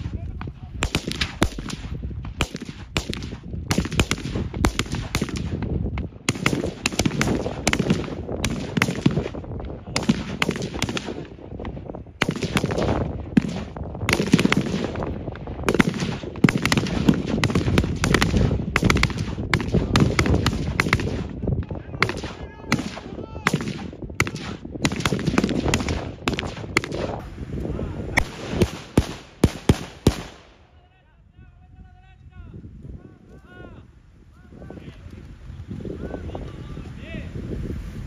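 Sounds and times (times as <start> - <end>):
rifle shots: 0.8 - 11.4, 12.2 - 21.4, 22.0 - 27.2, 28.2 - 30.7.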